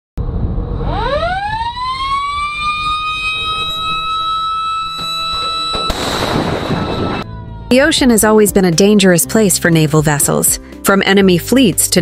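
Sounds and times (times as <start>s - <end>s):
missile launcher high whine: 0.2s - 7.3s.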